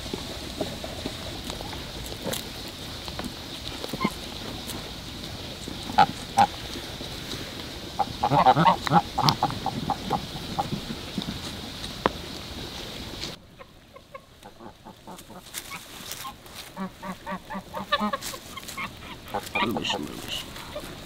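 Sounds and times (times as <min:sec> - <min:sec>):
fowl honking: 0:03.9 - 0:04.2, 0:05.9 - 0:06.6, 0:08.0 - 0:11.0, 0:13.5 - 0:21.0.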